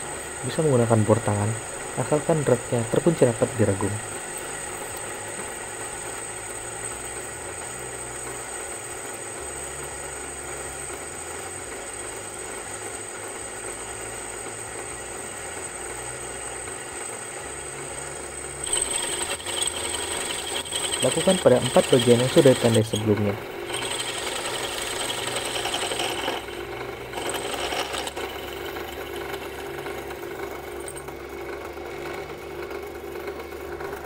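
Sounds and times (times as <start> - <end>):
drill press drilling metal: 0.0 - 7.0, 18.6 - 34.0.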